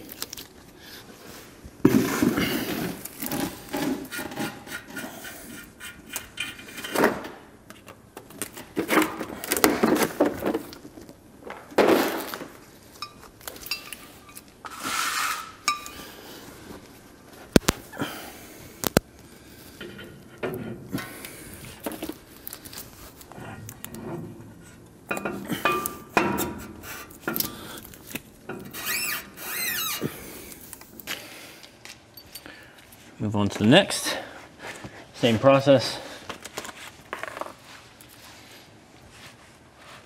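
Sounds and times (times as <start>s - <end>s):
metal clinks and knocks of tools: 13.0s - 14.5s, 32.1s - 32.9s.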